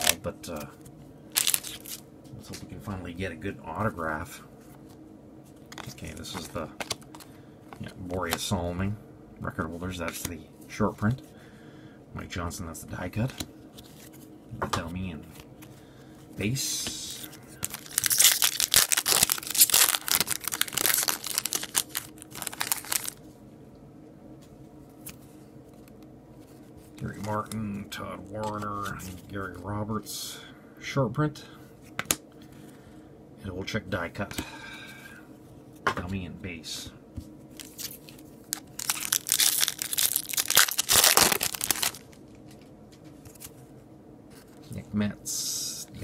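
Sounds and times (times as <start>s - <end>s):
foil pack tearing and crinkling: 1.4s - 2.0s, 17.6s - 23.2s, 37.6s - 42.2s.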